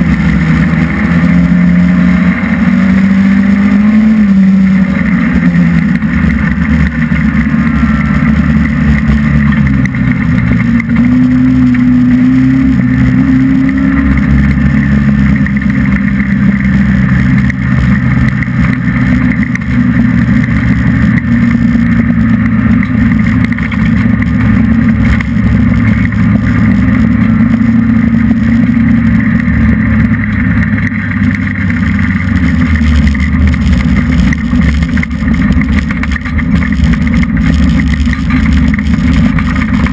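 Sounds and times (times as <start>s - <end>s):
race car engine running hard: 0.0s - 39.9s.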